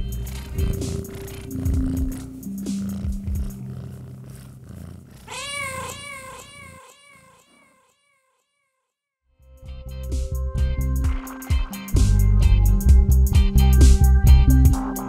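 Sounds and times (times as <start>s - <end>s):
cat meowing: 5.2s - 7.8s
dub reggae bass and drums: 9.7s - 15.0s.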